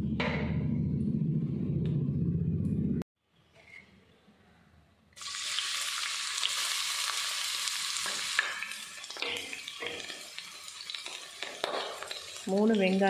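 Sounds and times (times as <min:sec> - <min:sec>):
onions sizzling in hot oil: 0:05.2 - 0:13.0.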